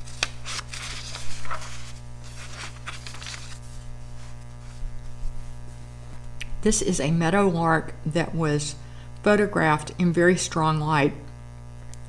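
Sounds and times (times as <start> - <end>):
paper rustling and brushing: 0.0 - 6.2
low electrical hum: 0.0 - 12.0.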